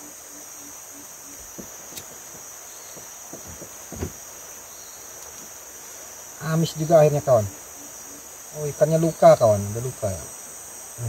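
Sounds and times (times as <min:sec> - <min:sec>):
insects chirping: 0:00.0 - 0:11.0
short soft knocks: 0:01.5 - 0:04.3.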